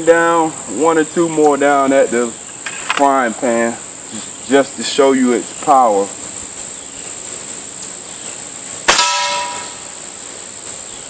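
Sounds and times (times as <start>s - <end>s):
insect chirring: 0.0s - 11.0s
pellet clanging on frying pan: 8.9s - 9.9s.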